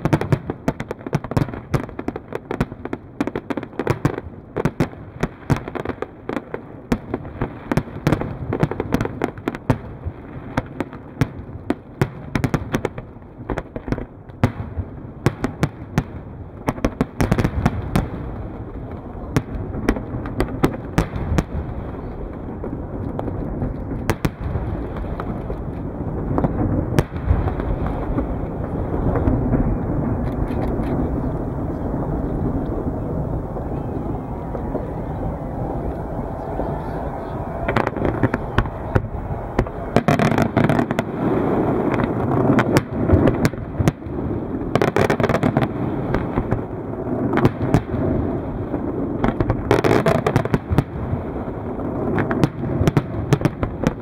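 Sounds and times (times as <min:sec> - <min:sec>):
fireworks bangs and crackling: 0:00.0 - 0:54.0
low rumble: 0:29.5 - 0:40.7.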